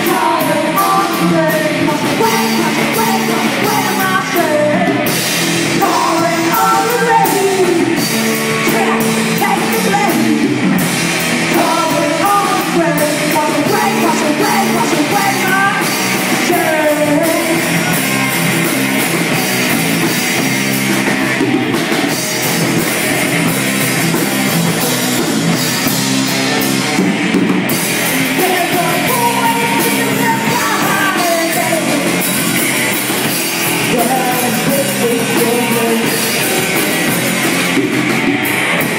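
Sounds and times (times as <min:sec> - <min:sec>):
woman singing: 0:00.0 - 0:10.5, 0:11.5 - 0:18.0, 0:28.2 - 0:32.2, 0:33.8 - 0:37.4
drum kit: 0:00.0 - 0:38.9
electric bass: 0:00.0 - 0:38.9
electric guitar: 0:00.0 - 0:38.9.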